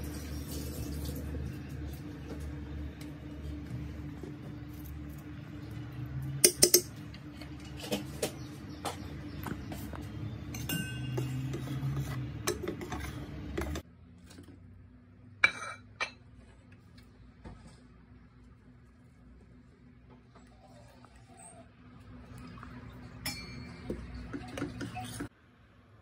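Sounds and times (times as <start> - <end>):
metal utensils clinking on pot: 6.4 - 8.0, 10.5 - 13.8, 23.2 - 25.3.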